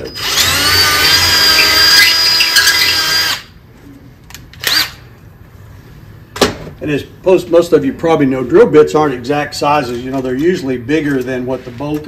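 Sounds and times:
cordless drill drilling metal: 0:00.0 - 0:03.5, 0:04.6 - 0:05.0.

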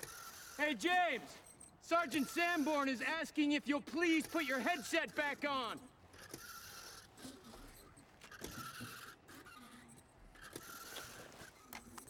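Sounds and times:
faint scrapes and clicks: 0:05.1 - 0:12.0.

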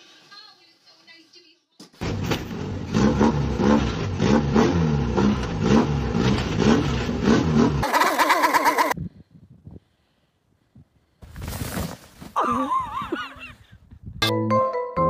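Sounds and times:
car engine revving: 0:02.0 - 0:08.0.

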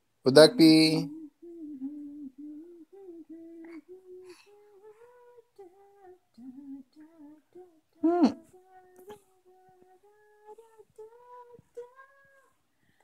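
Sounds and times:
person humming a tune: 0:00.8 - 0:12.5.

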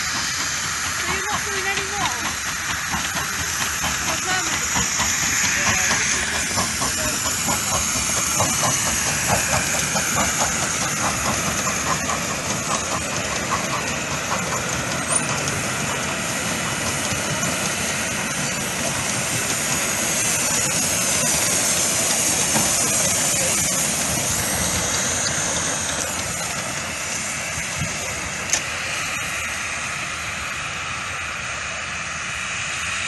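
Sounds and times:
steady steam hiss: 0:00.0 - 0:33.0
steam locomotive exhaust chuffs: 0:00.0 - 0:33.0.

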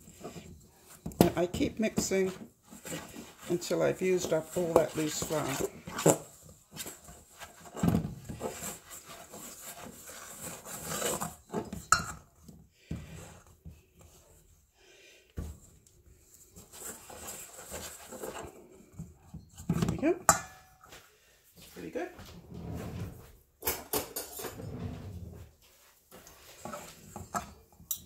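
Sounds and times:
fork scraping dough in metal bowl: 0:00.0 - 0:12.2, 0:16.5 - 0:19.0.

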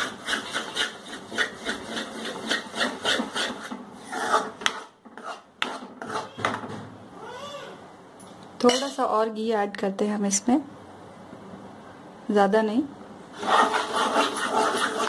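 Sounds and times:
spatula scraping a pan: 0:00.0 - 0:06.4, 0:13.3 - 0:15.0.

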